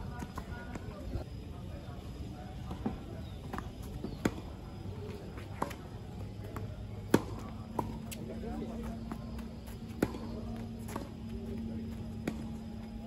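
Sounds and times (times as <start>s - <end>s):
tennis ball struck and bouncing: 6.5s - 8.2s, 9.7s - 11.3s.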